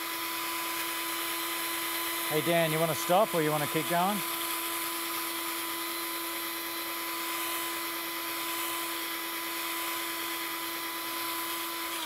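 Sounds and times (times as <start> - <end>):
power drill sanding plastic: 0.0 - 12.0.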